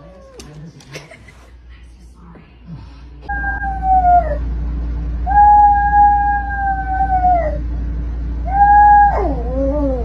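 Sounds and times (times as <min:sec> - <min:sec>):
small dog howling: 0:03.3 - 0:04.4, 0:05.3 - 0:07.6, 0:08.5 - 0:10.0.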